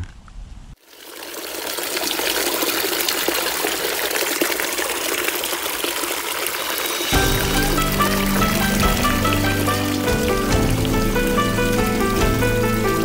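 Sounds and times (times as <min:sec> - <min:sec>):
stream of water running: 0:00.8 - 0:13.0
music: 0:07.1 - 0:13.0.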